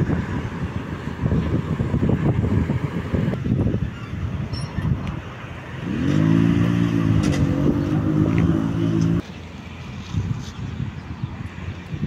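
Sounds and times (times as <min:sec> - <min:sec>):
vehicle engine running: 0:05.8 - 0:09.3.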